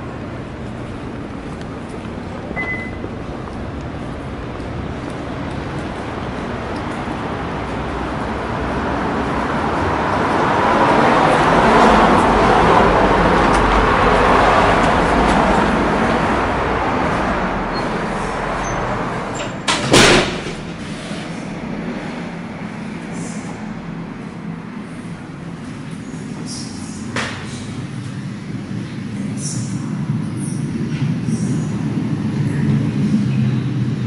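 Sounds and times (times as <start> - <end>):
passing traffic rushing: 0.0 - 34.0
wooden door shutting bang: 19.6 - 20.8.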